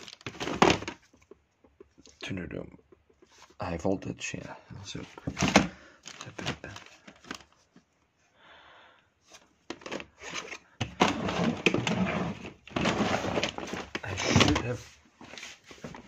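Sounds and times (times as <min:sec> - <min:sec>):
plastic cases clicking together: 0:09.6 - 0:11.8.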